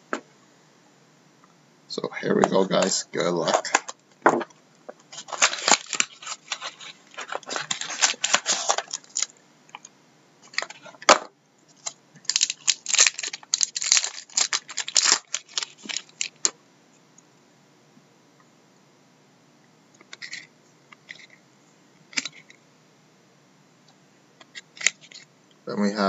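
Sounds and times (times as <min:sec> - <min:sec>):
wrappers tearing and crinkling: 0:05.1 - 0:09.4, 0:11.8 - 0:16.5.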